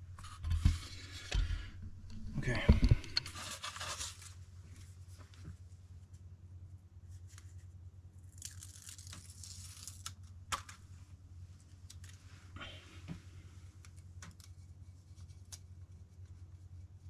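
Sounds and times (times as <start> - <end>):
steady low hum: 0.0 - 8.4
sticker backing paper crinkling: 2.4 - 4.4.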